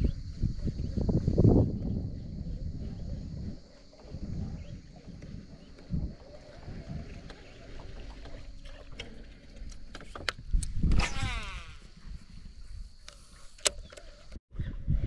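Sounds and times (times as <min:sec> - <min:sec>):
fishing reel spool whirring: 0:04.1 - 0:12.2.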